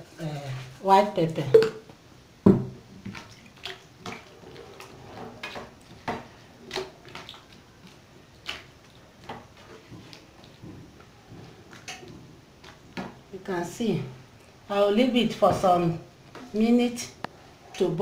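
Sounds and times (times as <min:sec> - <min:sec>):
liquid sloshing: 0:03.0 - 0:13.3.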